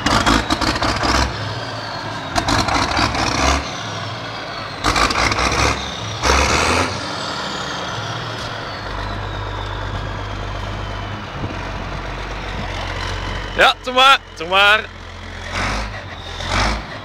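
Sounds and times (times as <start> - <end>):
diesel tractor engine revving: 0.0 - 17.0.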